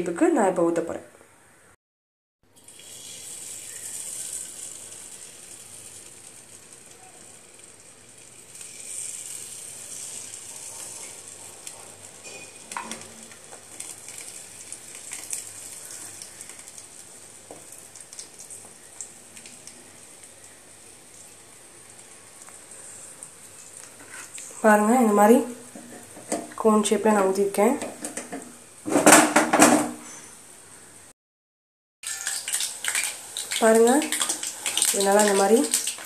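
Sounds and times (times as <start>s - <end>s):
batter sizzling in hot oil: 2.5s - 26.6s, 32.0s - 36.0s
oil crackles and pops: 2.6s - 24.6s, 32.0s - 36.0s.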